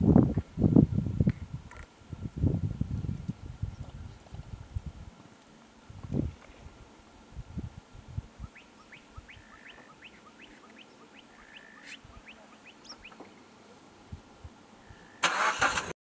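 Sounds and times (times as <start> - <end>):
bird whistles: 8.4 - 13.2
bird chirping: 8.4 - 13.4.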